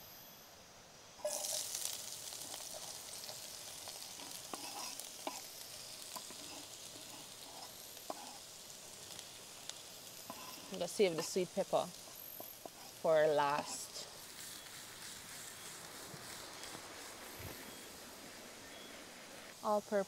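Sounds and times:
food sizzling in a pan: 1.2 - 20.0.

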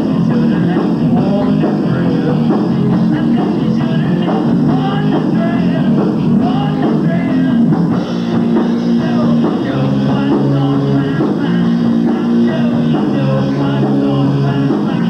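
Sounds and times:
bass guitar: 0.0 - 15.0
drum kit: 0.0 - 15.0
electric guitars: 0.0 - 15.0
lead singer singing: 0.0 - 15.0.

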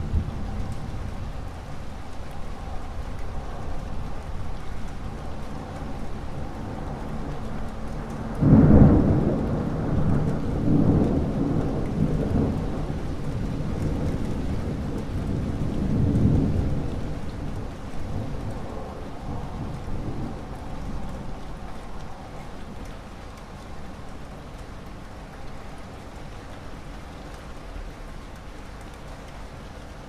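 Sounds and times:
steady rain: 0.0 - 30.0
thunder clap and rumbles: 2.8 - 22.8.

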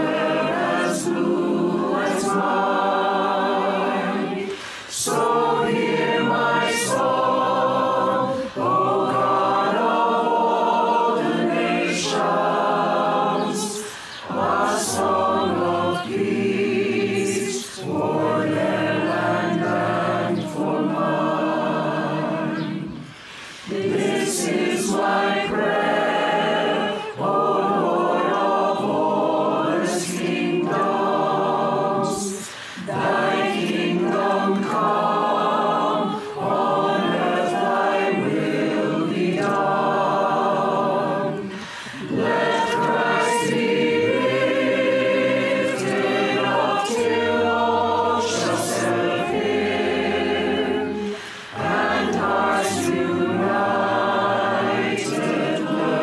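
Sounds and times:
choir singing a hymn: 0.0 - 56.0.

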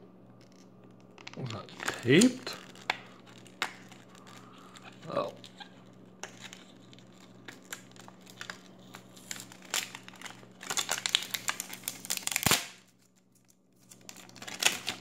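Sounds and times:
tape tearing: 0.4 - 13.1, 13.9 - 15.0
plastic packaging crinkling: 0.4 - 15.0.

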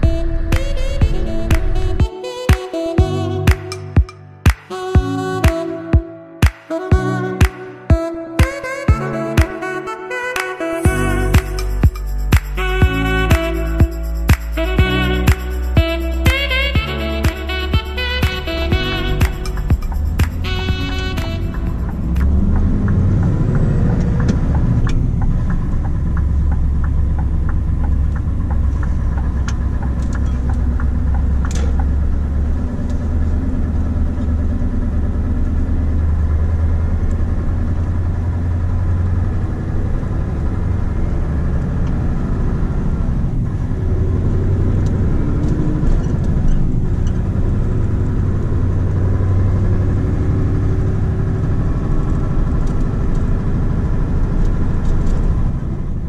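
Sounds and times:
diesel truck engine drone: 17.5 - 56.0.

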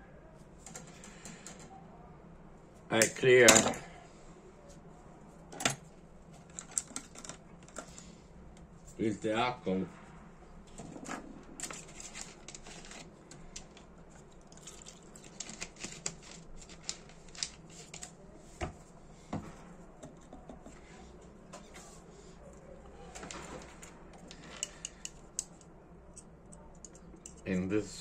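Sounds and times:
small tools clicking and scraping: 23.2 - 27.7.

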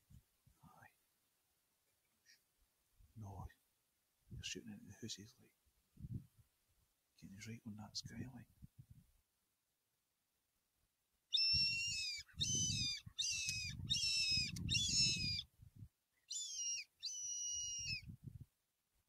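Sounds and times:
fox call squeals: 11.3 - 15.4, 16.3 - 18.0.

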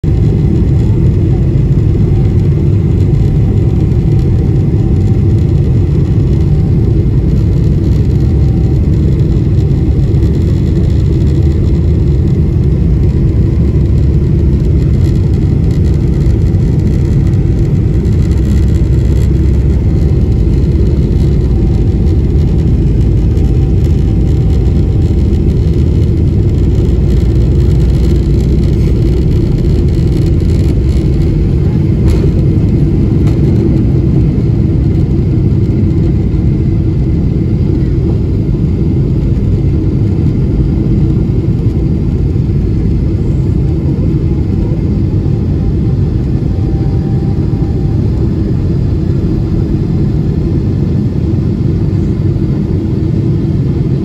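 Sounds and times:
jet engines rumbling in cabin: 0.0 - 54.0.

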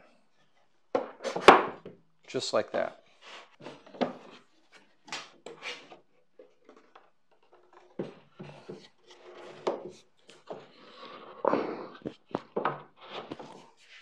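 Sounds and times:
wooden boards knocking and scraping: 0.9 - 2.0, 3.6 - 10.7, 12.3 - 13.7.

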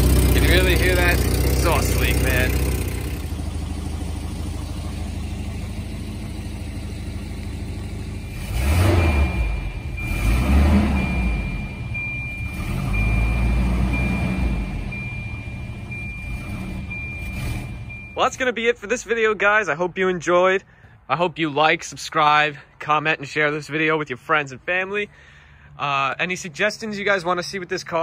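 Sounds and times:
car engine revving: 0.0 - 18.2
high steady beeping tone: 7.6 - 18.4.

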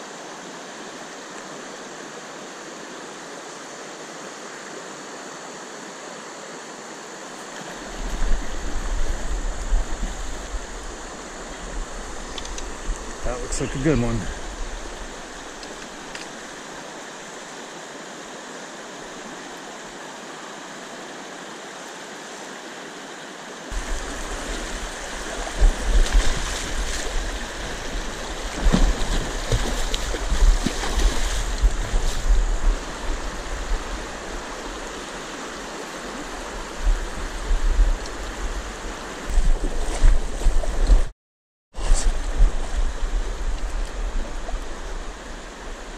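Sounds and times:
river water rushing over rocks: 0.0 - 41.0
sharp knocks or splashes: 28.5 - 32.2.

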